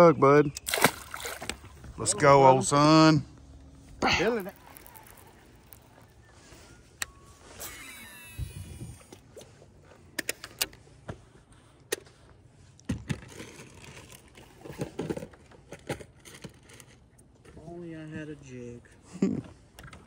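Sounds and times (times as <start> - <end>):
fishing gear clicking and rattling: 3.9 - 6.3, 13.2 - 17.1.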